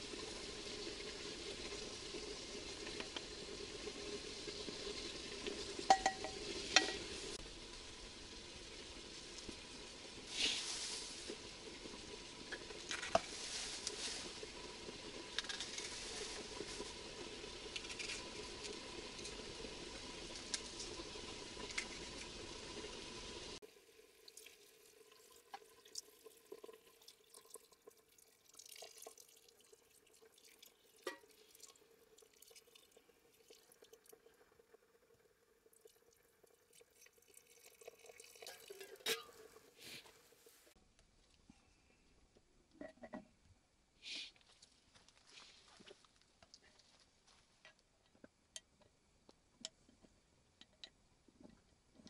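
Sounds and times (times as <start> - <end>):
food sizzling in a cauldron: 0.0 - 40.8
water trickling from a kettle: 0.0 - 40.8
faint water drips: 9.1 - 42.5.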